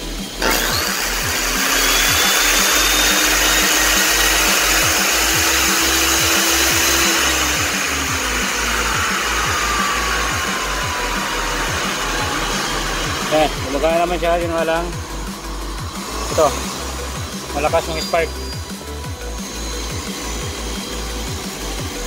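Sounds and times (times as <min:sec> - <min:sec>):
vacuum motor whining: 0:00.0 - 0:22.0.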